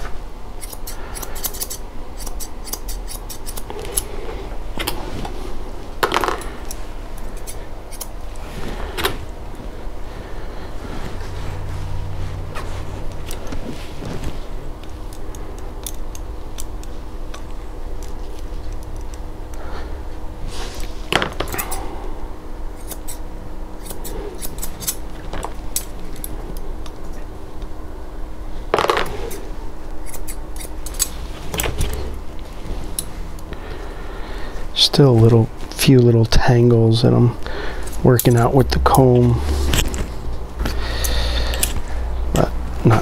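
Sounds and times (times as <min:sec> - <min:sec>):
low hum: 0:00.0 - 0:43.0
shears snipping hair: 0:00.6 - 0:04.1, 0:06.7 - 0:08.2, 0:22.8 - 0:23.2, 0:23.8 - 0:25.1, 0:29.2 - 0:31.2.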